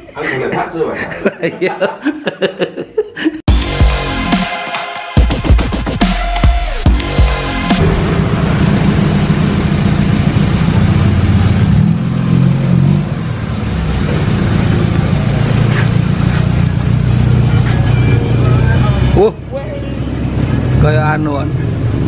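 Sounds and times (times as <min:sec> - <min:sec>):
car engine running: 0:06.8 - 0:22.0.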